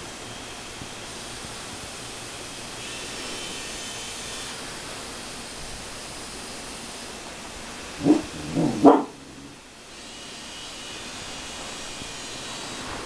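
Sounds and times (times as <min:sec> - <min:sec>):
steady background hiss: 0:00.0 - 0:13.0
dog barking: 0:08.0 - 0:09.6.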